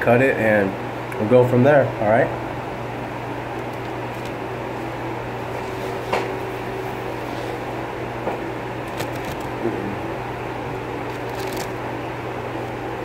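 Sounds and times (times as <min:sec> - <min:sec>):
low mechanical hum: 0:00.0 - 0:13.0
chewing and handling food: 0:03.5 - 0:05.0, 0:08.8 - 0:09.7, 0:10.6 - 0:11.9.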